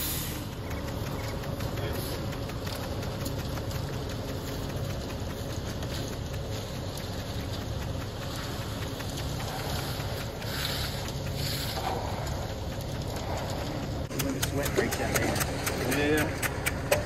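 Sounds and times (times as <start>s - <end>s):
truck engine running: 0.0s - 17.0s
wet concrete scraped with rakes: 8.3s - 17.0s.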